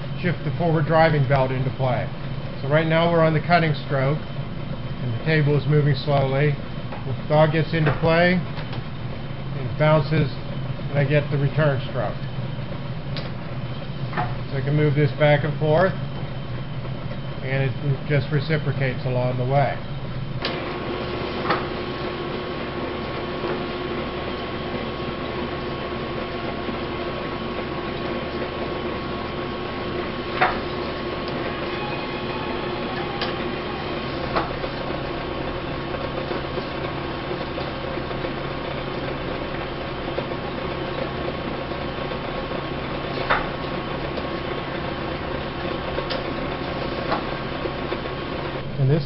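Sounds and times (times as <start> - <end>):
metal planer machine humming: 18.7 - 48.8.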